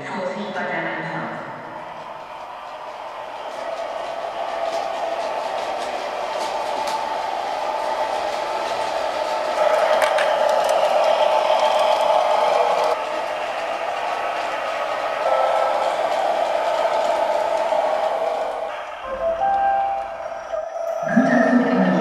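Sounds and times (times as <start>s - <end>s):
wheels clicking over rail joints: 2.3s - 20.3s.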